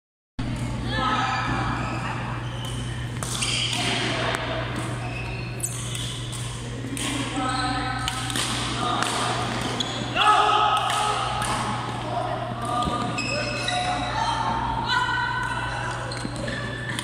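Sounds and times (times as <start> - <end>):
players' voices: 0.4 - 17.0
steady low hum: 0.4 - 17.0
racket hitting shuttlecock: 8.0 - 9.8, 10.8 - 11.9.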